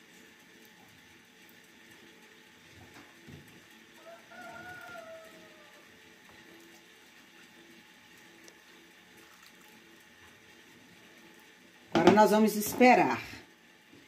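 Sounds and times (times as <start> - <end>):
rooster crowing: 4.0 - 6.0.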